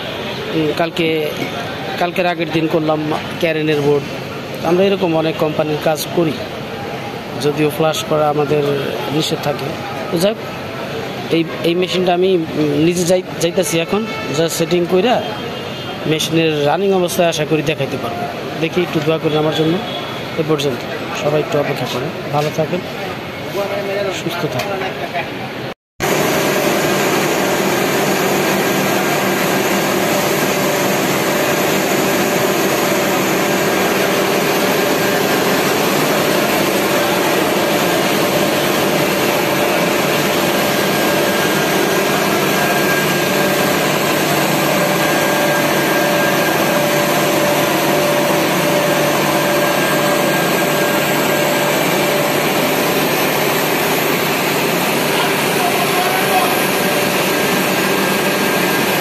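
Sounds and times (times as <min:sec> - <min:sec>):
machine mechanical whir: 0:26.0 - 0:59.0.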